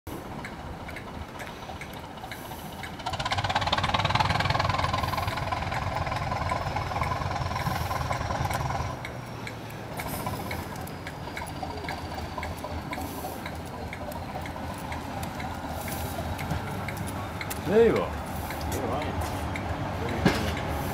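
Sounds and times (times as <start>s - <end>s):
diesel train engine running: 0.1s - 20.9s.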